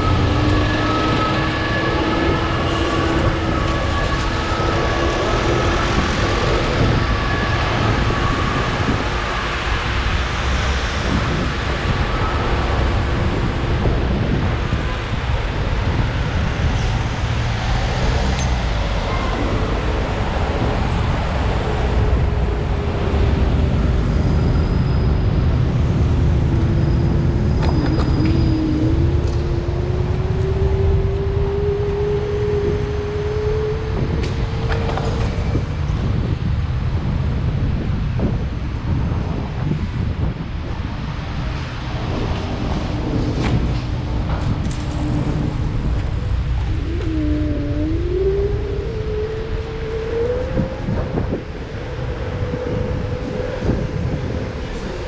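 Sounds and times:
wind and wheels rumbling: 0.0 - 55.0.

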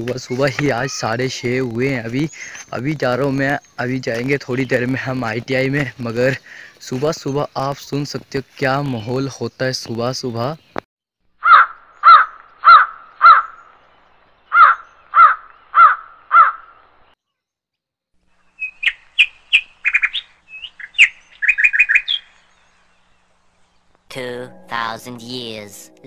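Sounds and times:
crow cawing: 11.4 - 13.6, 14.5 - 16.8
small bird chirping and trilling: 11.5 - 17.5, 18.4 - 24.0.

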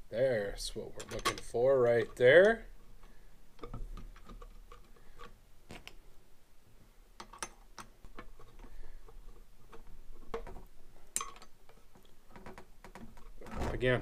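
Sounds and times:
plastic parts tapping: 1.0 - 6.0, 7.2 - 14.0.

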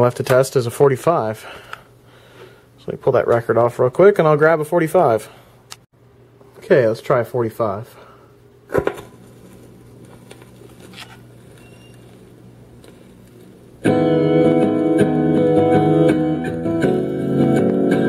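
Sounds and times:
record player hum: 0.0 - 18.0
piano and guitar music: 13.8 - 18.0.

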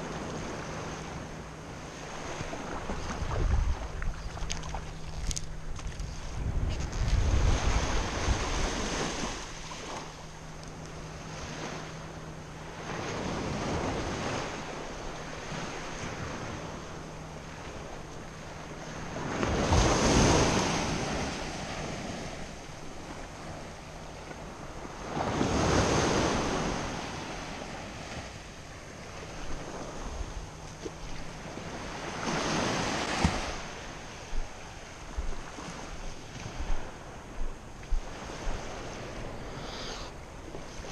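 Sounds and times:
wind buffeting microphone: 2.4 - 9.4
surf washing up a beach: 7.1 - 10.1, 12.7 - 30.4, 31.1 - 37.2.

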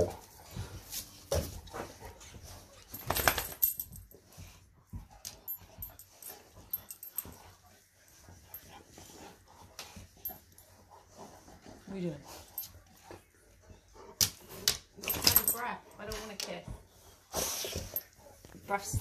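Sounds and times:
dogs rustling on sofa: 0.0 - 5.2, 15.0 - 19.0
collar buckles clinking: 0.0 - 17.1.

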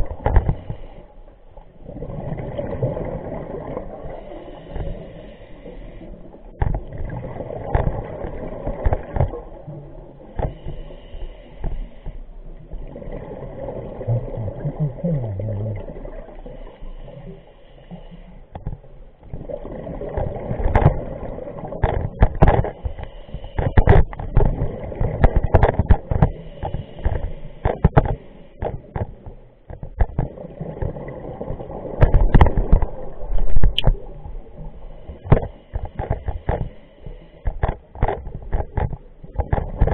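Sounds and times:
regulator inhale hiss: 0.4 - 1.3, 4.0 - 6.4, 10.4 - 12.4, 16.3 - 18.5, 22.8 - 24.2, 26.3 - 28.6, 34.7 - 37.6
exhaled bubbles rushing: 1.8 - 4.2, 12.6 - 16.6, 19.3 - 21.8, 30.2 - 34.7.

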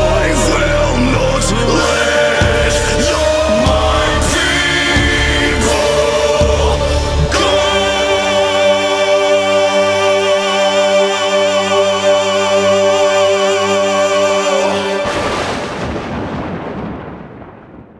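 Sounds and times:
wavering voice: 0.0 - 15.1
singers and orchestra holding chord: 0.0 - 17.2
loud orchestral hit: 14.7 - 17.8.

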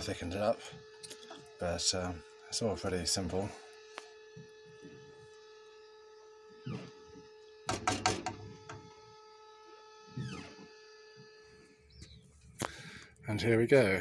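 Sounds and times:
high-pitched hum: 0.0 - 14.0.

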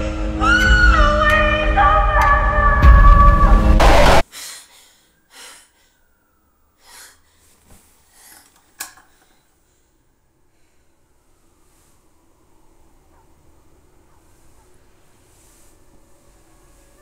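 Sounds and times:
loud burst of music and noise: 2.8 - 4.2
heavy breathing: 4.2 - 11.5.

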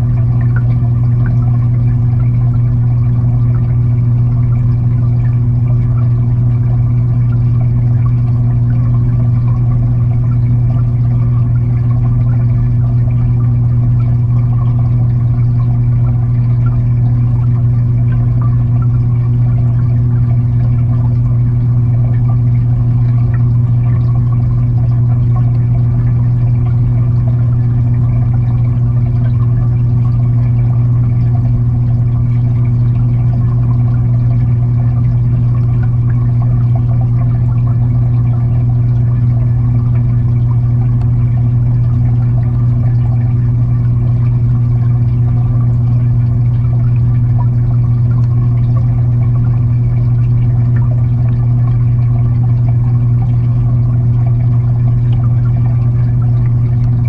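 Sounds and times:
aquarium hum: 0.0 - 57.0
water rushing underwater: 0.0 - 57.0.

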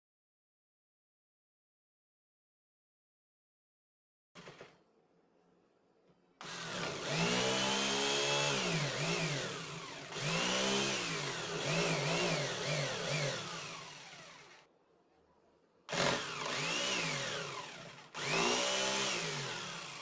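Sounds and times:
jigsaw cutting wood: 6.4 - 14.7, 15.9 - 20.0.

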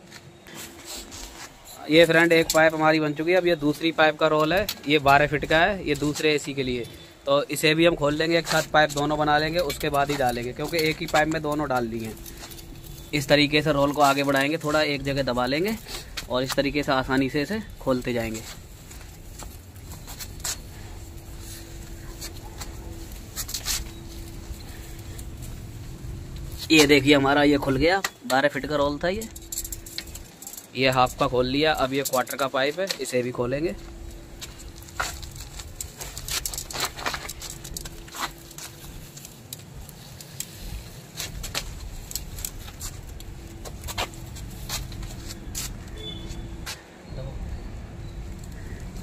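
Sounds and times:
steady low rumble: 14.8 - 31.9, 33.4 - 45.9.

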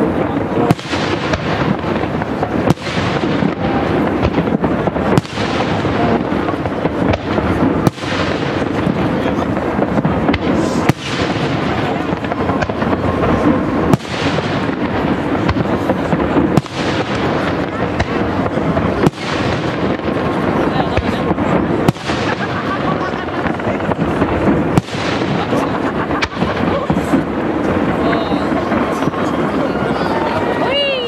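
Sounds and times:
crowd voices: 0.0 - 31.0.

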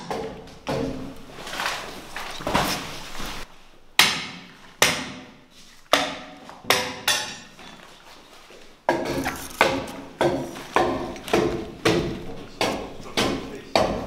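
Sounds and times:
hammer blows ringing: 8.9 - 14.0.

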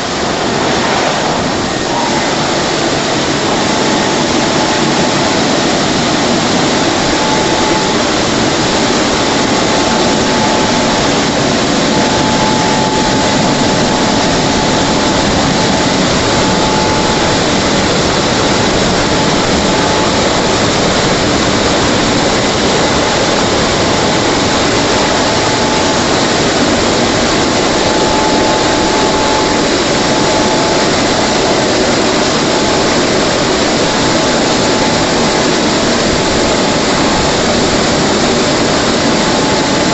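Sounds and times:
car wash blowers rushing air: 0.0 - 39.9
faint whine: 0.0 - 39.9.

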